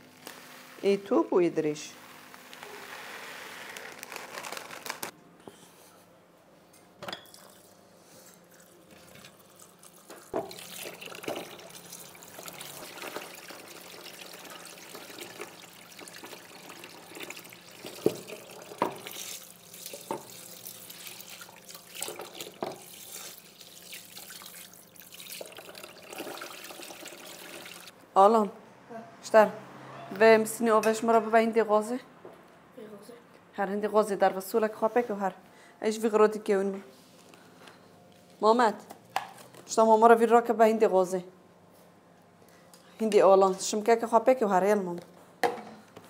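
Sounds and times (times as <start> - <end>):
tap water running into sink: 10.1 - 27.9.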